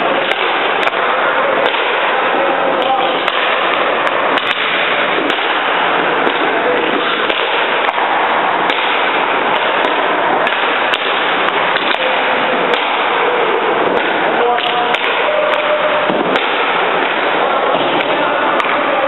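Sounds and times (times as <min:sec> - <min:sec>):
indoor ice rink noise: 0:00.0 - 0:19.0
sharp clicks and clacks: 0:02.8 - 0:13.2.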